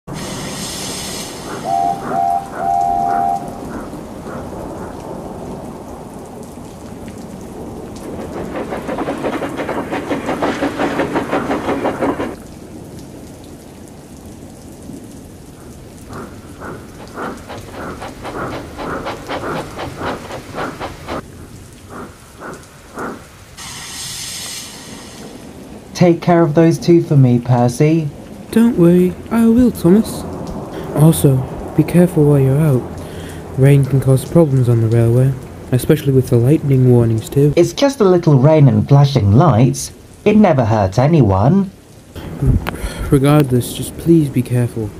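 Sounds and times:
steam whistle toots: 0:00.1 - 0:03.7
steam locomotive chuffing: 0:00.1 - 0:04.4, 0:08.0 - 0:12.4, 0:16.1 - 0:21.3, 0:21.9 - 0:25.4
thunder: 0:00.1 - 0:26.0, 0:29.5 - 0:35.7, 0:42.2 - 0:43.2
rain: 0:00.1 - 0:44.9.

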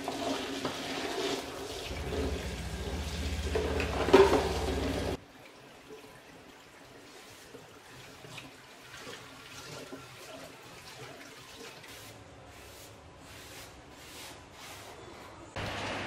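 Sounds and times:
scouring pad scrubbing steel sink: 0:00.1 - 0:05.2
water sounds: 0:01.4 - 0:12.0.

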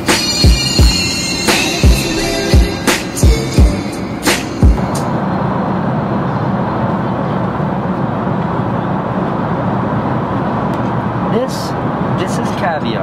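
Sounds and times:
deep falling bass hits: 0:00.4 - 0:05.9.

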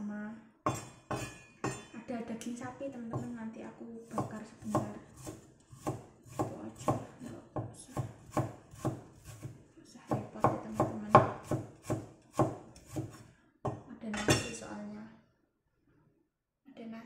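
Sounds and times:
knife chopping on cutting board: 0:00.7 - 0:01.9, 0:04.1 - 0:07.1, 0:07.9 - 0:13.8.

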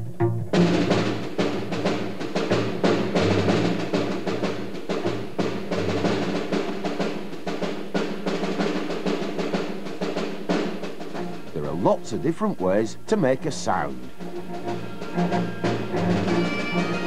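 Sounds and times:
plucked double bass: 0:00.0 - 0:01.0
snare drum strokes: 0:00.6 - 0:17.0.

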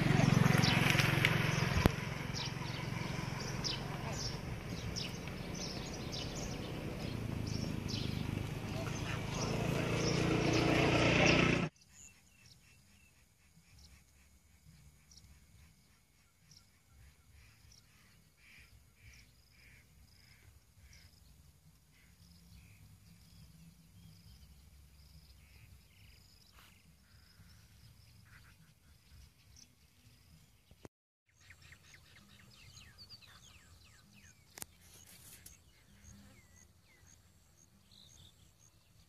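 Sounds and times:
loud outdoor noise: 0:00.0 - 0:11.8
open field ambience: 0:00.0 - 0:39.0.

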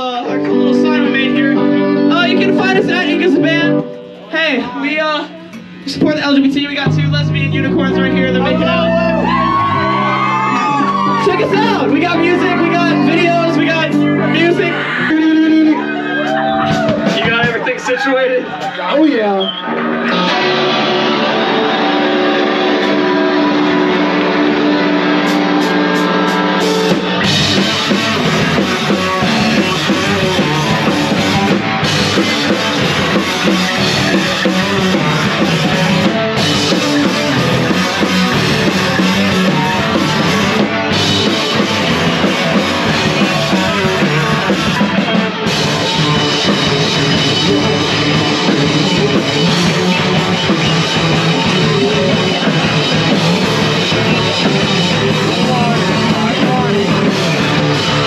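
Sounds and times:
ringing guitar and bass notes: 0:00.0 - 0:58.0
rock band playing loud: 0:00.0 - 0:58.0
drum hits: 0:05.3 - 0:13.8, 0:16.6 - 0:17.8.

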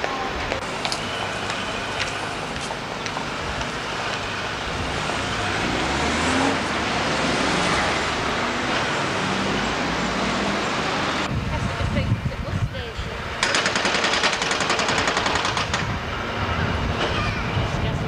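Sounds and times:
cars passing: 0:00.0 - 0:13.4.

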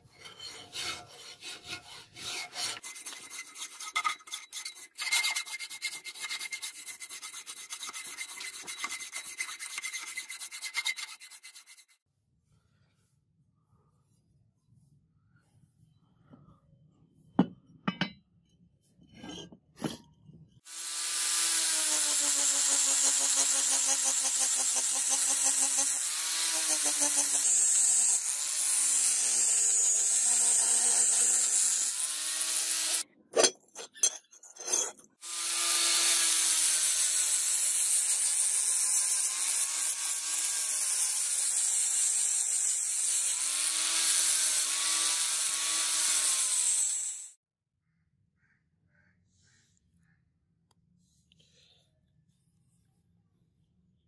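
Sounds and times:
angle grinder grinding steel: 0:00.0 - 0:11.9, 0:20.7 - 0:47.4.

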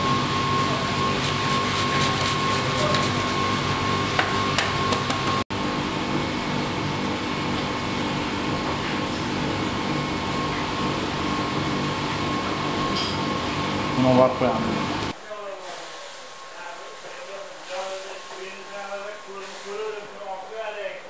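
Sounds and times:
mechanical whirring hum: 0:00.0 - 0:21.0
hiss: 0:19.3 - 0:20.0.

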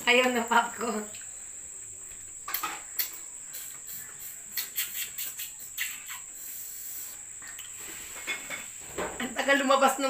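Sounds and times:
crickets trilling: 0:00.0 - 0:10.0
snails sucked from shells slurping: 0:03.5 - 0:08.2.

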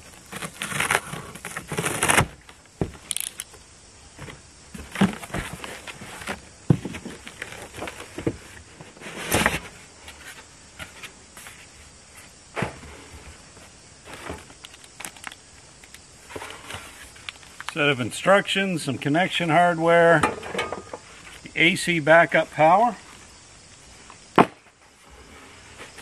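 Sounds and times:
cardboard scraping and rustling: 0:00.0 - 0:03.0, 0:04.2 - 0:14.6.

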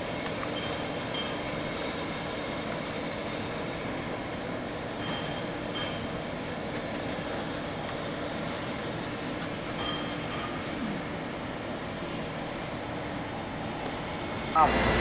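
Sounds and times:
industrial machinery rumble: 0:00.0 - 0:15.0
high machine squeals: 0:00.5 - 0:03.9, 0:05.0 - 0:06.2.

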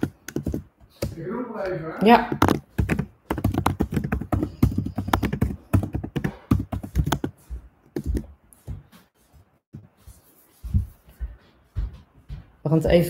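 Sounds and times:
laptop keyboard typing: 0:00.0 - 0:08.2.

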